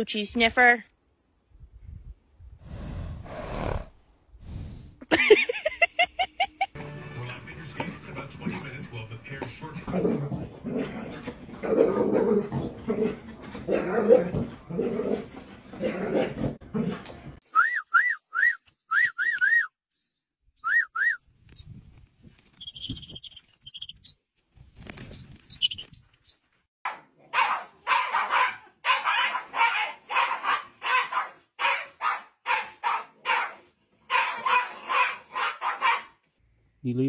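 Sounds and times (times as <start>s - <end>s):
dogs barking: 7.8s - 17.1s, 26.9s - 36.2s
whistle-like chirps: 17.4s - 19.8s, 20.6s - 21.2s.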